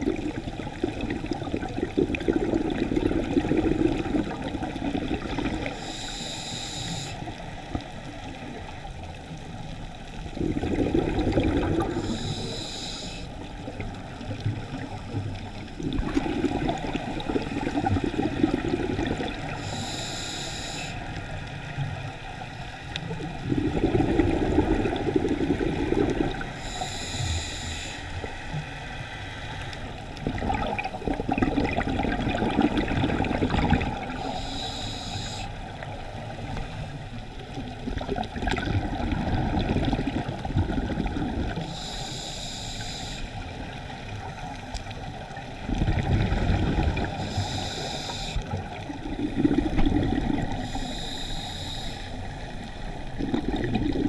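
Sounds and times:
bubbling exhalations: 0:00.0 - 0:05.8, 0:10.4 - 0:12.2, 0:15.8 - 0:19.5, 0:23.3 - 0:26.6, 0:30.2 - 0:34.2, 0:37.9 - 0:41.7, 0:45.6 - 0:47.4, 0:49.0 - 0:50.7, 0:53.1 - 0:54.0
regulator hissing inhalations: 0:05.6 - 0:07.4, 0:11.8 - 0:13.4, 0:19.4 - 0:21.1, 0:26.5 - 0:28.2, 0:34.1 - 0:35.6, 0:41.6 - 0:43.5, 0:47.1 - 0:48.6, 0:50.4 - 0:52.4.

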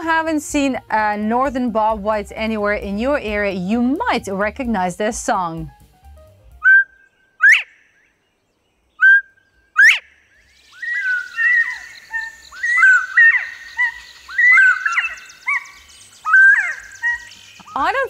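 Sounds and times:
bobwhite whistled song: 0:06.6 - 0:08.1, 0:08.9 - 0:18.0
faint high bird chorus: 0:06.6 - 0:18.0.

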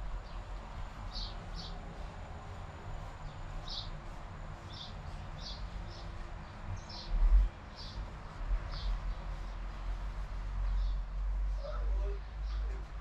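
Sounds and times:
small bird chirping: 0:04.7 - 0:06.1.

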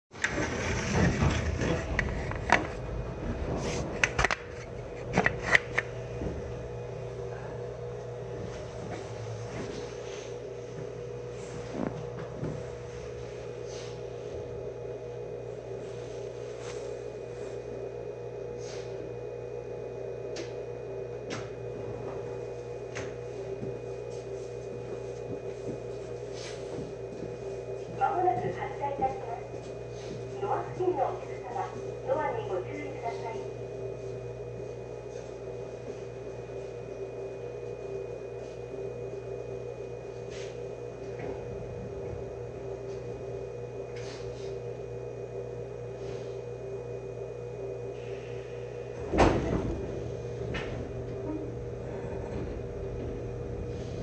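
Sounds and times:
low hum of onboard equipment: 0:00.1 - 0:54.0
train wheels and motors rumbling: 0:00.1 - 0:54.0.

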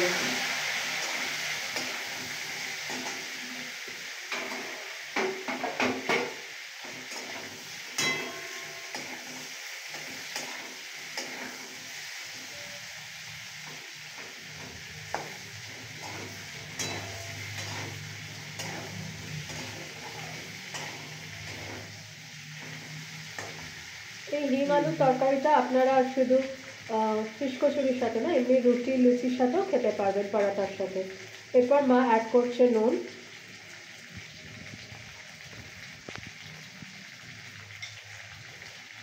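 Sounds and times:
metal spatula scraping a pan: 0:00.0 - 0:24.1
potatoes sizzling in hot oil: 0:00.0 - 0:39.0.

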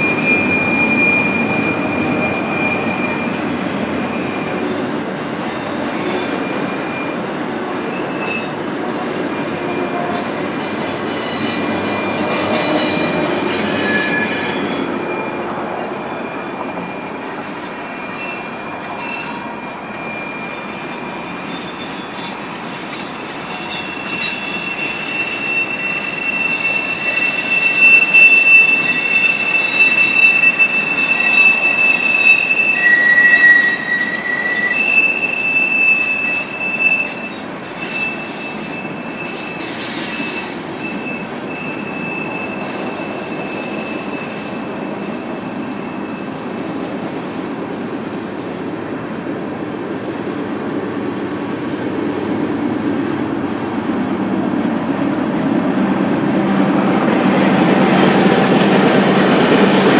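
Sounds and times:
steel wheels squealing: 0:00.0 - 0:46.8
train cars rolling rumble: 0:00.0 - 0:59.9.

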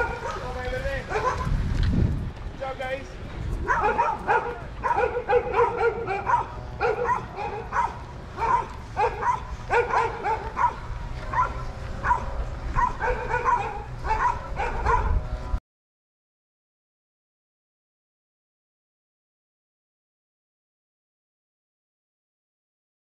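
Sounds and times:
dog barking: 0:00.0 - 0:00.5, 0:01.1 - 0:01.5, 0:03.6 - 0:15.2
wind rumble on microphone: 0:00.0 - 0:15.6.

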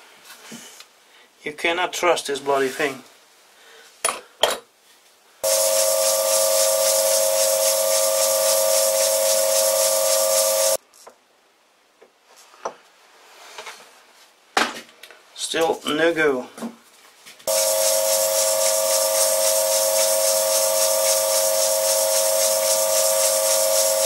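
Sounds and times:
file hissing on spinning metal: 0:05.4 - 0:10.8, 0:17.5 - 0:24.0
metal lathe whine: 0:05.4 - 0:10.8, 0:17.5 - 0:24.0.

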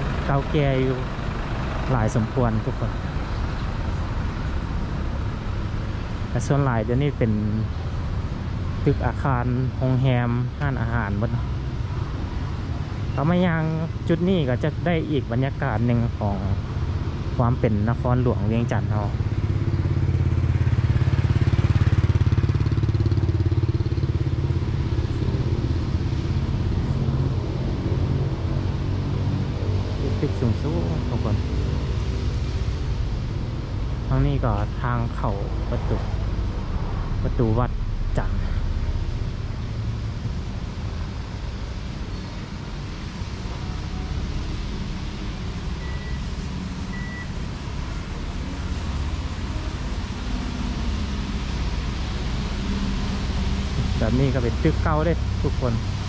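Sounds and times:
low rumble of street noise: 0:00.0 - 0:56.0
short high beeps: 0:45.8 - 0:46.3, 0:47.0 - 0:47.3.

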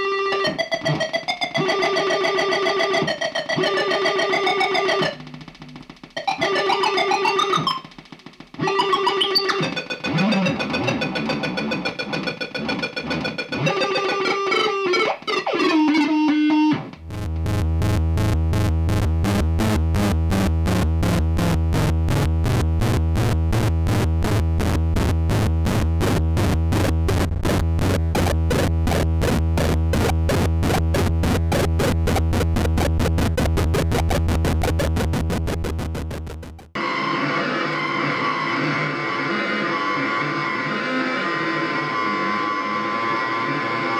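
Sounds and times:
distorted pulsing synth drone: 0:17.1 - 0:36.8.

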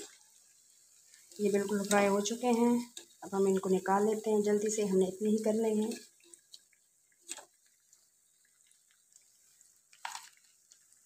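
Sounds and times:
hot oil dripping: 0:00.0 - 0:11.0.

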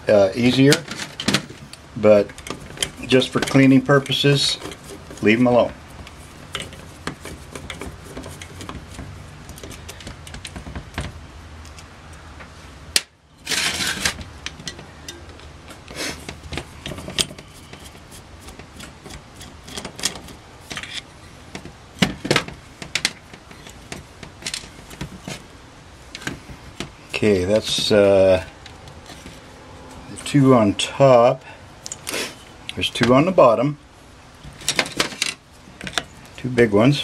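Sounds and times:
screwdriver turning screws: 0:16.8 - 0:21.0.

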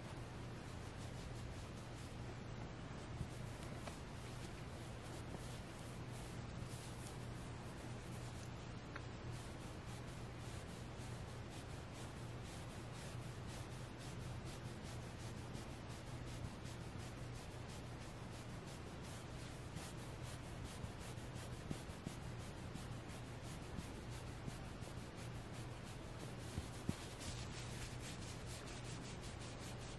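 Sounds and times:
fingernails scratching soft fabric: 0:03.1 - 0:29.9.

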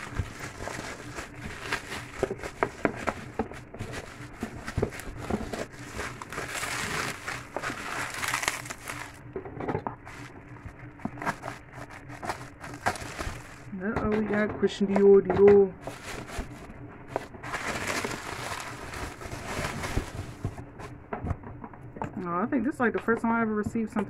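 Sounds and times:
bubble wrap crinkling: 0:00.0 - 0:09.3, 0:10.0 - 0:13.8, 0:15.8 - 0:21.0.

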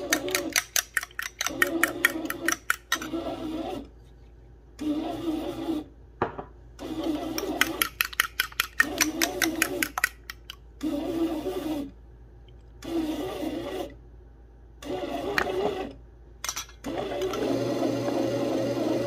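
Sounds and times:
bread machine motor humming: 0:16.8 - 0:19.0.

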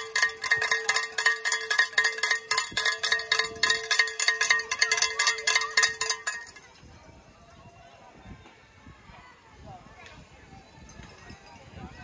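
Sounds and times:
handheld cowbell clanging: 0:00.0 - 0:06.8.

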